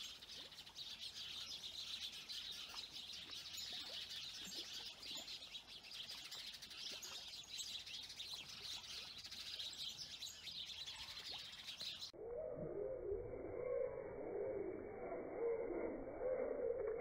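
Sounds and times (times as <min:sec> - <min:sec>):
birds chirping: 0:00.0 - 0:12.2
low wavering sound: 0:12.2 - 0:17.0.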